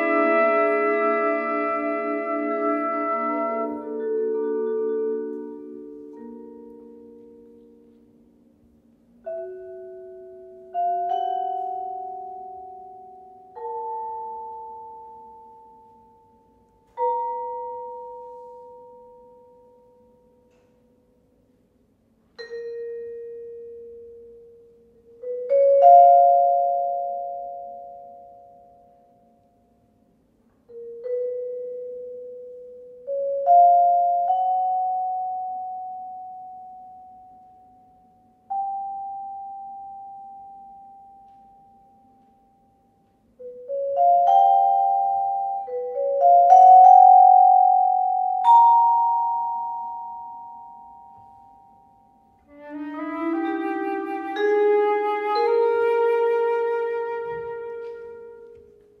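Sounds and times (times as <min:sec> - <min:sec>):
vibraphone chords ringing: 0:00.0 - 0:20.9, 0:22.3 - 0:29.9, 0:30.6 - 0:59.0.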